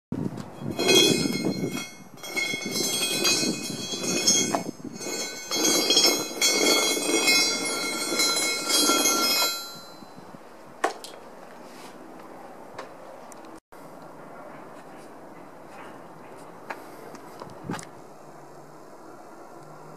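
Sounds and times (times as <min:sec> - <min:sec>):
metal rail scraping on asphalt: 0:00.6 - 0:10.2.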